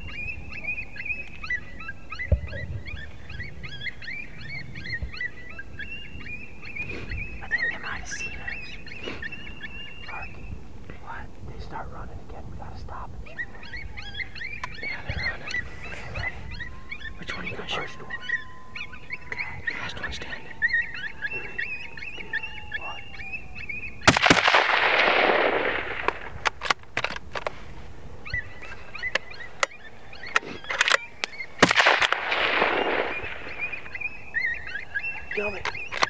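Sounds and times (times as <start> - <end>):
rifle shots with echo: 24.0 - 27.4, 30.8 - 34.1.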